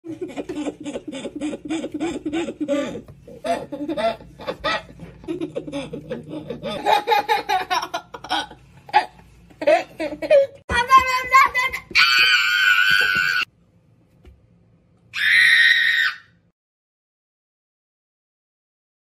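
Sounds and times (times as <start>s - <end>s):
toddler laughing: 0.1s - 10.6s.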